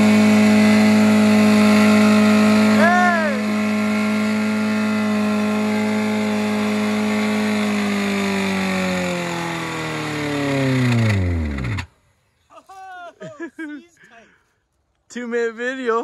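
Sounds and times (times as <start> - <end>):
car engine screaming and seizing: 0.0 - 11.9.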